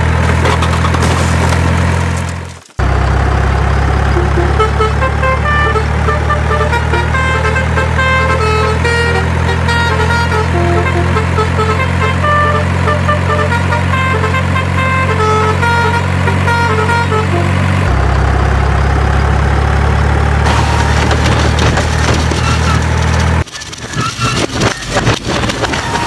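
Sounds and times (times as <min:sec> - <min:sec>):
truck engine hum: 0:00.0 - 0:26.0
tune of short high notes: 0:04.1 - 0:09.2.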